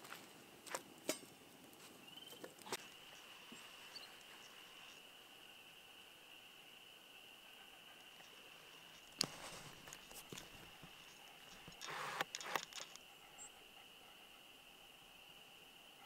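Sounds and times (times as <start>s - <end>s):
spring peepers chorus: 2.0s - 9.2s.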